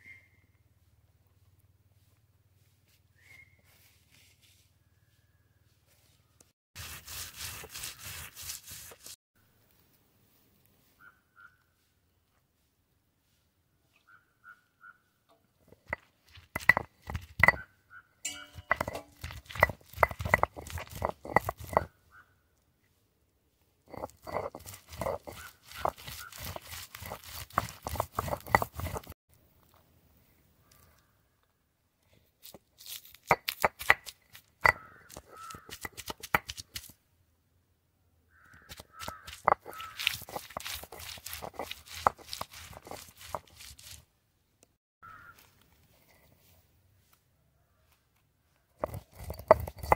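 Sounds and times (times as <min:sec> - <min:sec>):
sharp ringing knocks: 0:18.3 - 0:19.2
crows cawing: 0:34.7 - 0:35.8, 0:38.3 - 0:40.1, 0:45.0 - 0:45.5.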